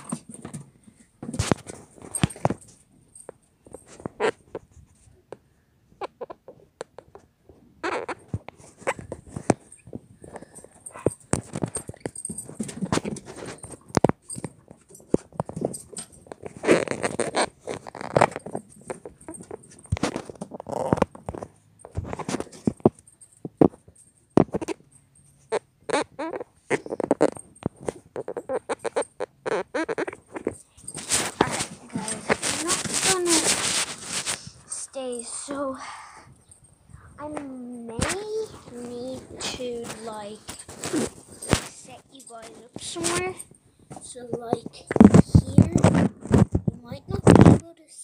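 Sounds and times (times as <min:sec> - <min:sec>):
clothing rustle: 0:30.0 - 0:35.8, 0:36.5 - 0:47.7.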